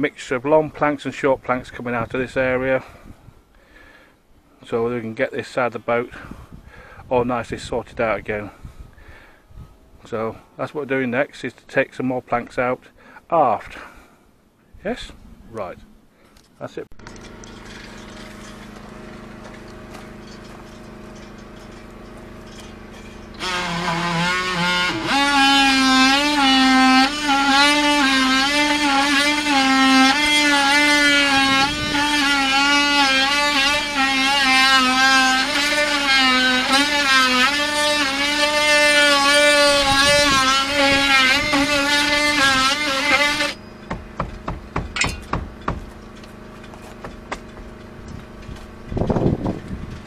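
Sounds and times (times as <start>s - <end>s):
cordless drill whining: 17.0s - 49.8s.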